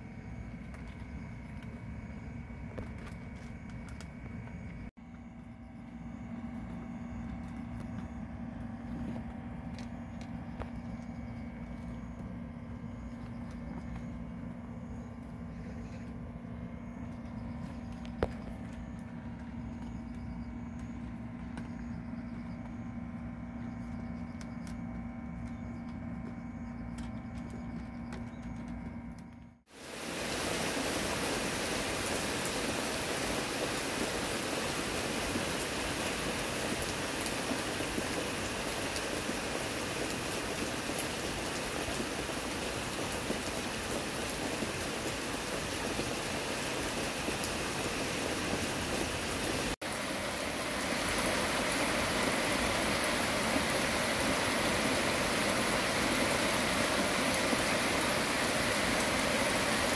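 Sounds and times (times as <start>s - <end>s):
steady rain: 29.7s - 59.9s.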